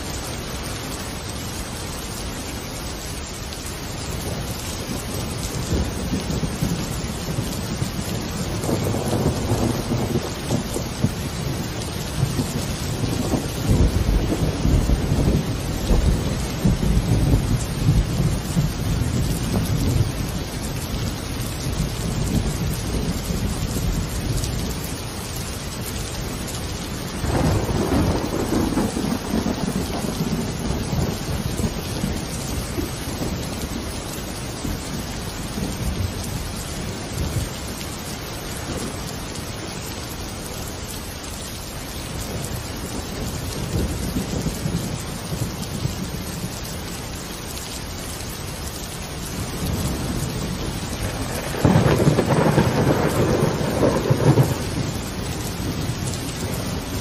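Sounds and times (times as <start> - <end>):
steady rain: 0.0 - 57.0
rolling thunder: 4.2 - 20.8, 27.1 - 33.8, 49.2 - 57.0.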